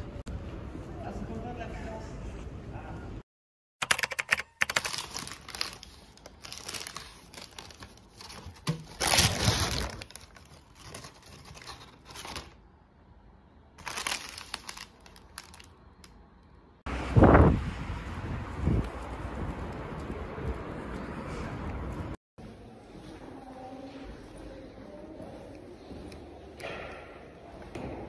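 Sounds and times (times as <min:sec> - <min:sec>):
paper bag crinkling: 0:03.9 - 0:12.6, 0:13.8 - 0:16.1.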